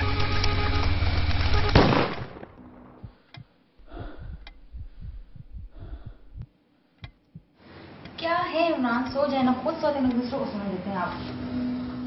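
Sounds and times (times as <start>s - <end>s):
street noise: 0.0s - 2.2s
loud sudden hit: 1.6s - 3.2s.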